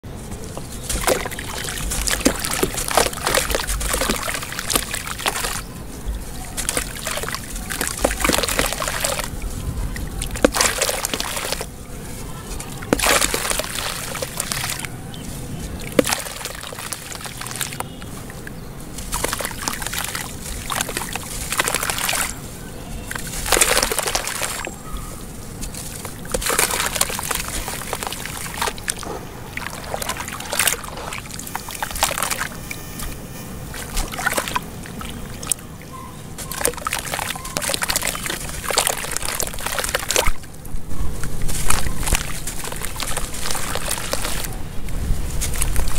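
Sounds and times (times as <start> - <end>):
wet sand crumbling: 0.0 - 45.9
hands swishing through water: 0.2 - 45.9
pieces splashing into water: 0.6 - 5.6, 6.3 - 11.7, 12.6 - 14.9, 15.7 - 18.1, 19.0 - 22.4, 23.1 - 24.7, 25.6 - 32.6, 33.7 - 35.6, 36.4 - 40.5, 41.4 - 44.6.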